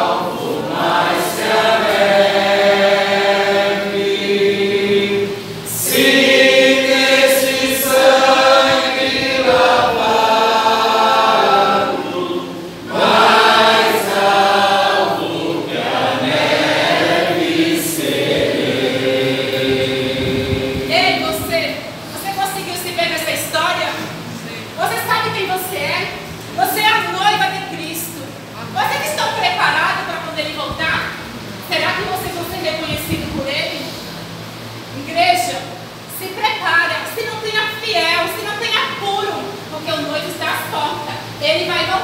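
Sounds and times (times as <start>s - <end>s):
group singing worship song: 0.0s - 24.2s.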